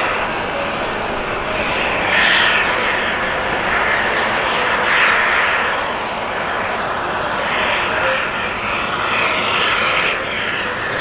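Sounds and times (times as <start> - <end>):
jet engine hissing rush: 0.0 - 11.0.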